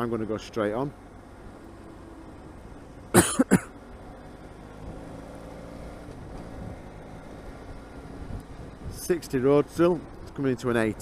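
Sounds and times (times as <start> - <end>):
road noise: 0.0 - 11.0
man coughing: 3.1 - 3.7.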